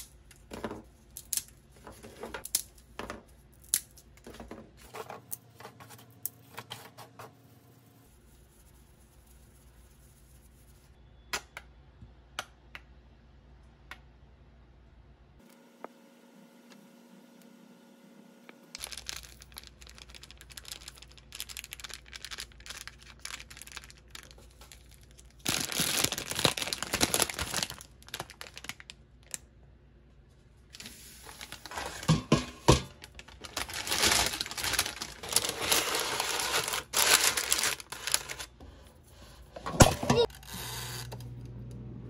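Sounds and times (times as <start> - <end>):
plastic packaging crinkling and tearing: 18.8 - 29.4, 30.7 - 32.1, 32.9 - 38.5.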